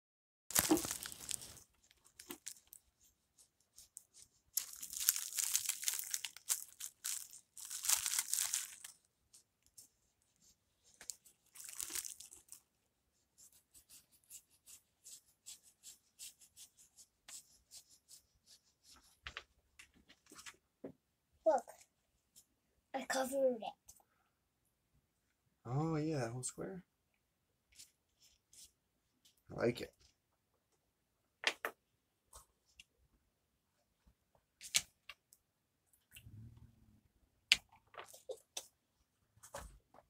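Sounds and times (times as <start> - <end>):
paintbrushes scrubbing paper: 13.3 - 19.2.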